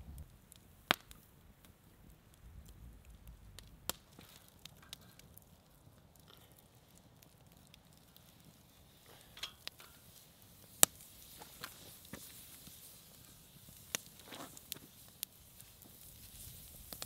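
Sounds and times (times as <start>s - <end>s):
campfire crackling and popping: 0.0s - 17.0s.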